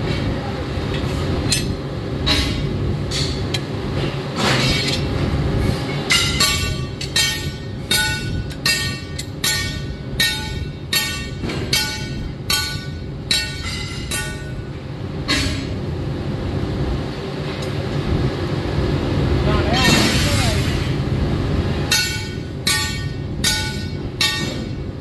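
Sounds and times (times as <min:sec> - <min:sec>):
low machine rumble: 0:00.0 - 0:25.0
hammer striking steel: 0:01.5 - 0:03.7, 0:05.9 - 0:15.8, 0:19.8 - 0:20.9, 0:21.9 - 0:25.0.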